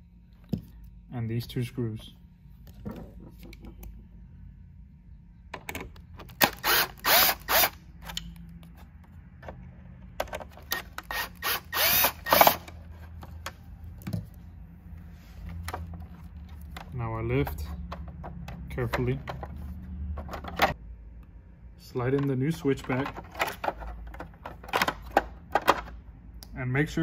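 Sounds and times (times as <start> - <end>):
power screwdriver spinning: 6.4 - 8.2, 10.7 - 12.7.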